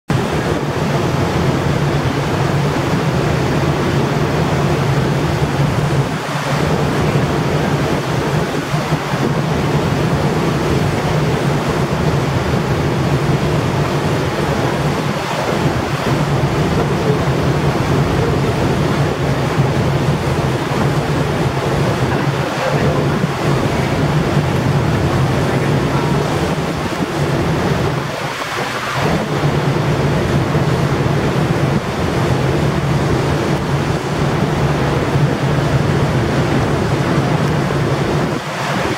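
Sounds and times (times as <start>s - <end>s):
choppy sea water: 0.1s - 38.9s
wind on microphone: 0.1s - 38.9s.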